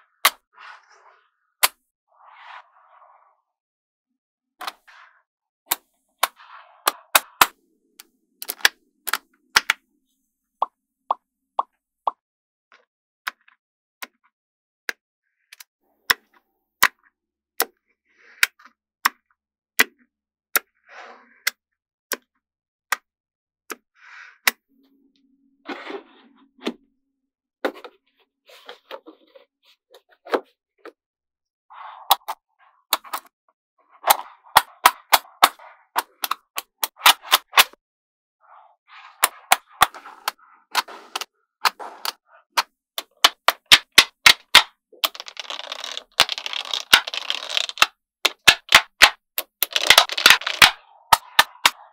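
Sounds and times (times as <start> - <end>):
magnetic balls clicking together: 43.0 - 51.8.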